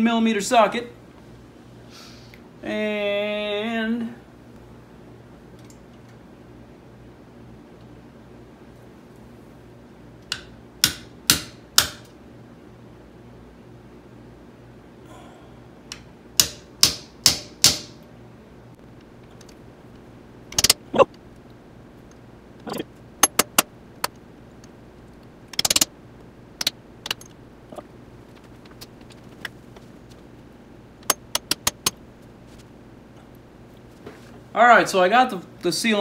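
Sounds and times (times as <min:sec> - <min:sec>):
hammer striking metal socket: 0:15.9 - 0:17.9, 0:20.5 - 0:20.8, 0:23.2 - 0:23.7, 0:25.5 - 0:25.9, 0:31.0 - 0:32.0.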